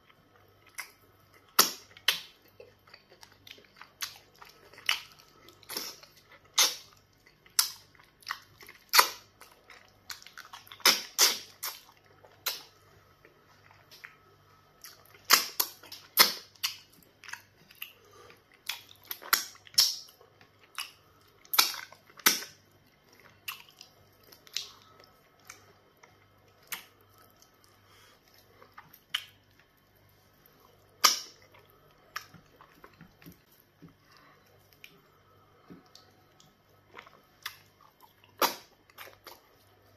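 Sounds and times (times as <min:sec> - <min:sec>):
wet lip smacks and squelches: 0:10.1 - 0:12.7, 0:28.9 - 0:29.4, 0:37.0 - 0:39.4.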